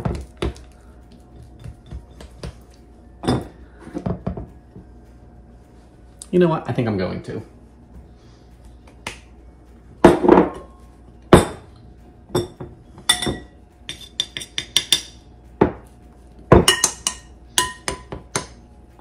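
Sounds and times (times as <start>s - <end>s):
glass bowls clinking: 3.2s - 4.5s, 10.1s - 11.7s, 12.3s - 15.2s, 16.5s - 18.6s.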